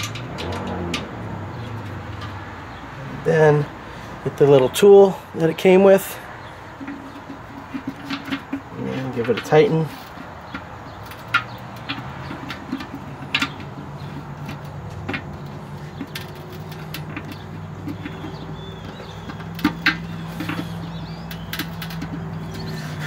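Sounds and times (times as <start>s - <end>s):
vehicle engine humming: 0.0s - 23.0s.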